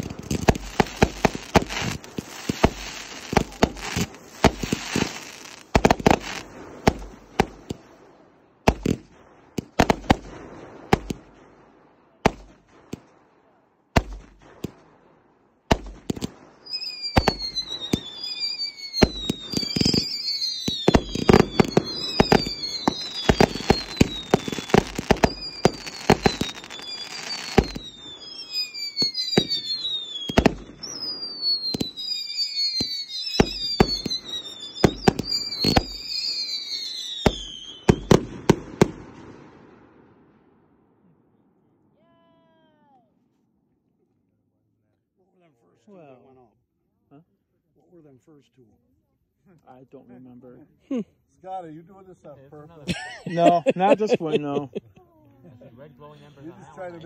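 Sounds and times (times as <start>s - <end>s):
whistling firework shots: 0.0s - 40.5s
fireworks bangs and crackling: 0.0s - 40.7s.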